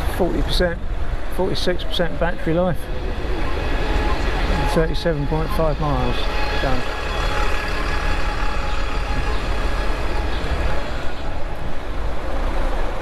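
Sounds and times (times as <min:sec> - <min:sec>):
bus engine running: 0:00.0 - 0:13.0
traffic noise: 0:00.0 - 0:13.0
wind rumble on microphone: 0:08.0 - 0:13.0.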